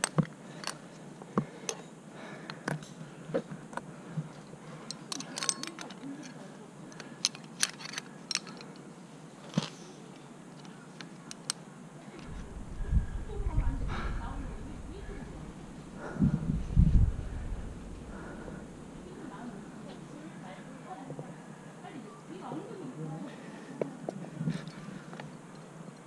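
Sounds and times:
carabiners clinking: 0:00.0 - 0:00.9, 0:04.8 - 0:08.8.

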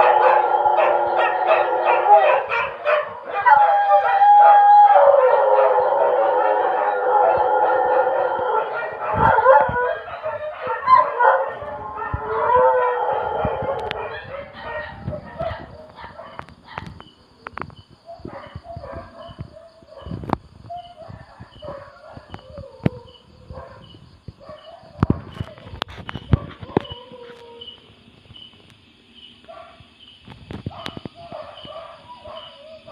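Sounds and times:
dogs howling: 0:00.0 - 0:16.4.

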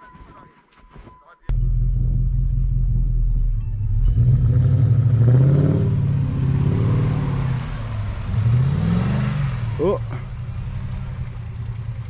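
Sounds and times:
car engine revving in snow: 0:01.5 - 0:12.0.

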